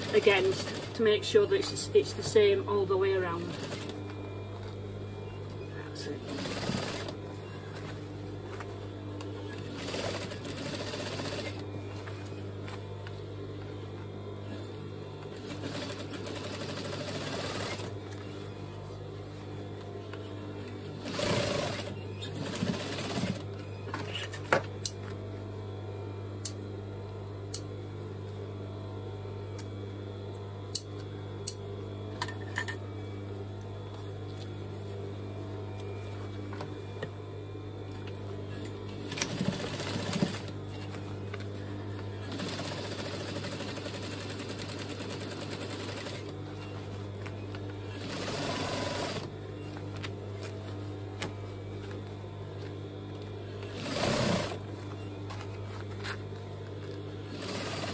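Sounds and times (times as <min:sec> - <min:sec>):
sewing machine motor humming: 0:00.0 - 0:01.6, 0:03.2 - 0:04.3, 0:05.1 - 0:07.7, 0:09.4 - 0:11.7, 0:14.4 - 0:18.3, 0:21.0 - 0:23.6, 0:39.0 - 0:40.9, 0:42.2 - 0:46.4, 0:47.8 - 0:49.3, 0:53.6 - 0:54.7, 0:57.2 - 0:57.9
sewing machine stitching: 0:15.5 - 0:17.9, 0:21.0 - 0:23.4, 0:39.1 - 0:40.5, 0:42.3 - 0:46.3, 0:48.0 - 0:49.3, 0:53.7 - 0:54.6, 0:57.3 - 0:57.9.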